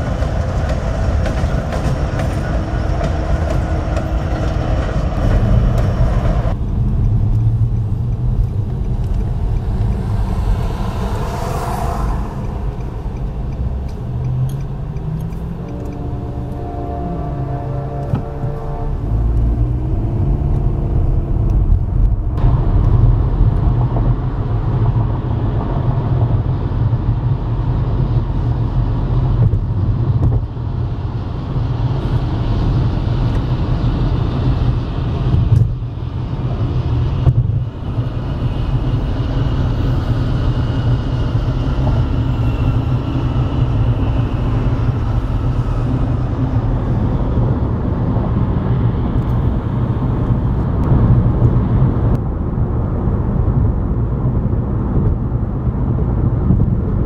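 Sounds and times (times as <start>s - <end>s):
road and engine rumble in car: 0.0s - 57.0s
faint whine rising in pitch: 37.8s - 47.5s.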